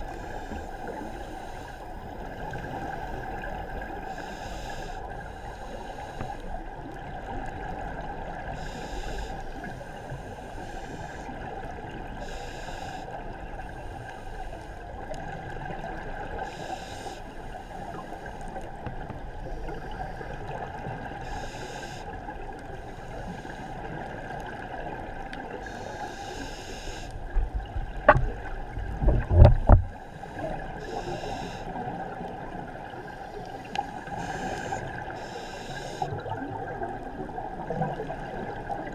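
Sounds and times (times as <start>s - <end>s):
regulator breathing hiss: 0.0s - 6.6s, 8.5s - 11.4s, 12.1s - 14.8s, 16.4s - 18.6s, 21.2s - 22.2s, 22.8s - 24.0s, 25.6s - 27.3s, 29.9s - 31.8s, 33.0s - 36.3s
low bubbling gurgles: 27.2s - 30.0s.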